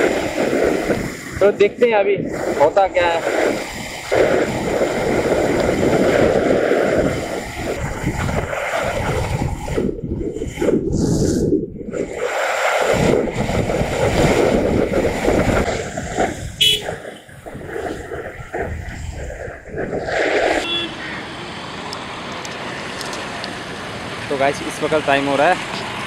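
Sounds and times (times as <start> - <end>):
wind rushing over microphone: 0.0 - 21.1.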